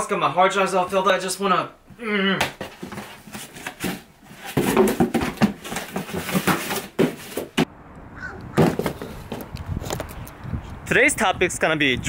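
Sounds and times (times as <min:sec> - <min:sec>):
outdoor air: 0:01.8 - 0:12.0
cardboard box handled: 0:02.6 - 0:07.6.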